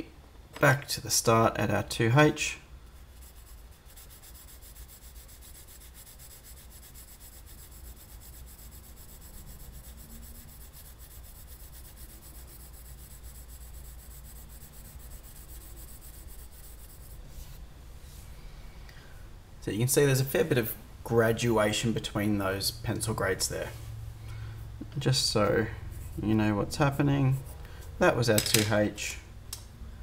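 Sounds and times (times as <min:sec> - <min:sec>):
pencil scratching on paper: 0:03.0 - 0:17.5.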